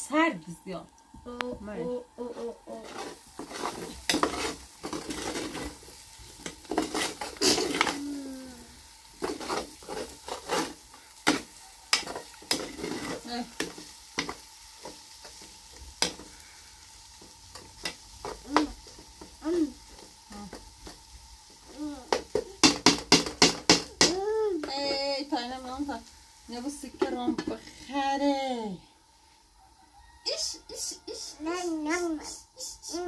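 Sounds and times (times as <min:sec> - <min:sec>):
food sizzling: 0:00.0 - 0:33.0
utensil scraping in a pan: 0:02.2 - 0:28.4.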